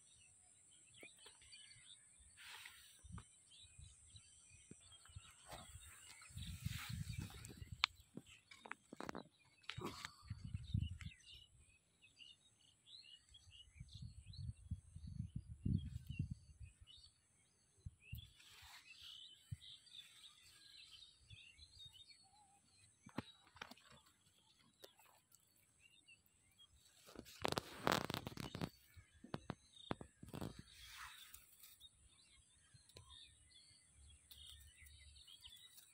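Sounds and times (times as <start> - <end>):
small birds chirping: 0.0 - 35.9
microphone handling rumble: 4.8 - 11.4.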